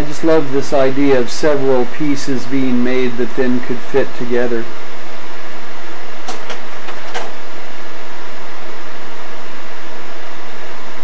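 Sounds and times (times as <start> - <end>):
steady hiss: 0.0 - 5.4
slide projector clicks: 6.2 - 7.4.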